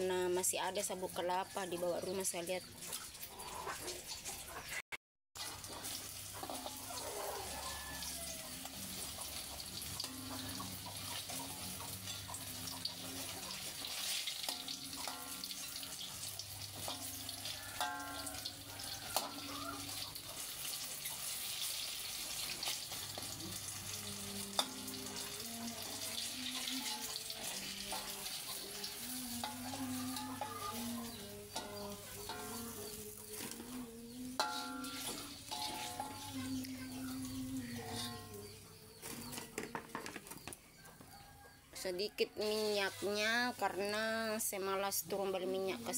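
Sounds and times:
bananas sizzling in oil: 5.4 - 40.0.

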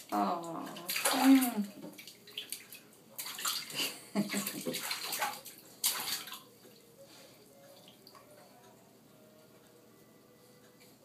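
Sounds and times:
baby splashing bathwater: 0.0 - 6.5.

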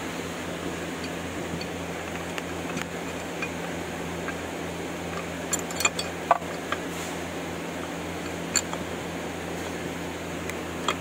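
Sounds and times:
steady hum: 0.0 - 11.0
metal tools clinking on metal: 2.6 - 4.4, 5.0 - 6.8, 8.2 - 8.9.

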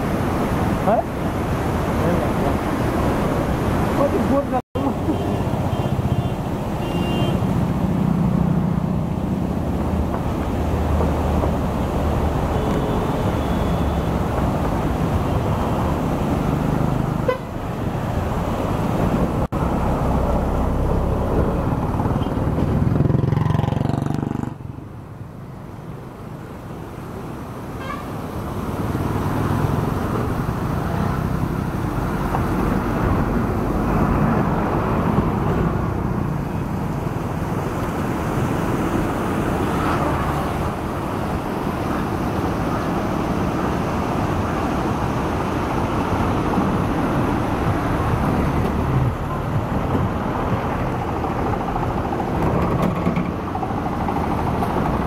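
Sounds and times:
whitewater roaring through gorge: 0.0 - 6.8, 25.8 - 52.7.

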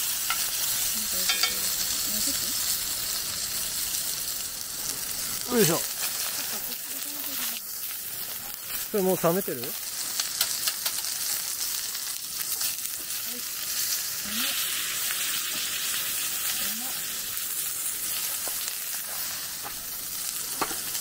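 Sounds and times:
steak sizzling in a pan: 0.0 - 21.0.

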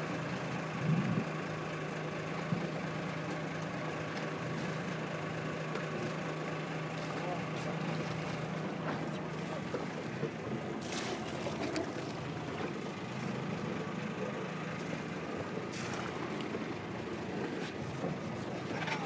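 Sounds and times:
boat engine humming: 0.0 - 19.0
water rushing past hull: 6.9 - 13.8, 15.4 - 18.9.

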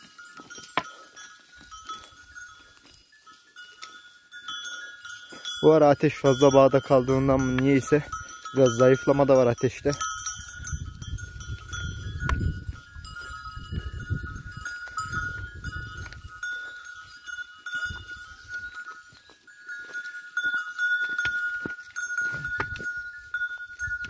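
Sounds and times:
animal bells ringing: 0.0 - 24.0.

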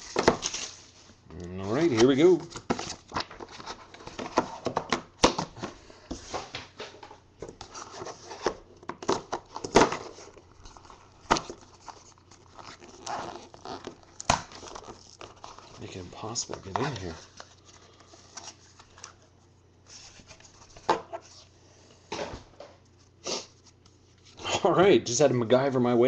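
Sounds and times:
packaging scraping and rustling: 7.6 - 19.2.

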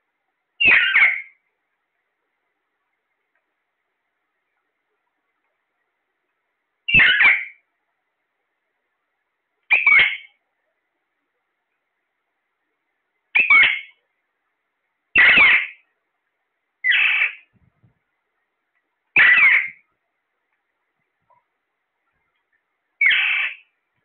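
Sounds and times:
parakeets squawking: 0.6 - 1.3, 6.9 - 7.6, 9.7 - 10.3, 13.4 - 13.9, 15.2 - 15.8, 16.8 - 17.4, 19.2 - 19.8, 23.0 - 23.6.

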